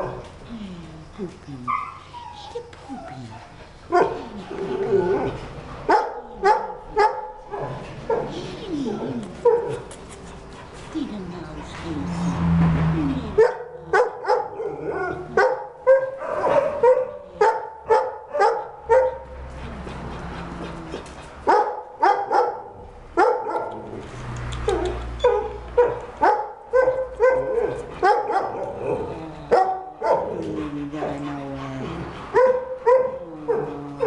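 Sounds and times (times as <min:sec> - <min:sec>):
dog barking: 0:03.9 - 0:04.2, 0:05.9 - 0:07.3, 0:13.4 - 0:19.2, 0:21.5 - 0:23.8, 0:24.7 - 0:28.6, 0:29.5 - 0:30.3, 0:32.4 - 0:33.7.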